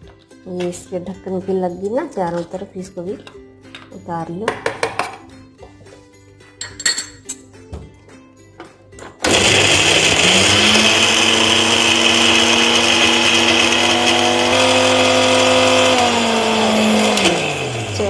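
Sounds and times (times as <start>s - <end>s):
electric mixer grinder running: 9.2s - 18.0s.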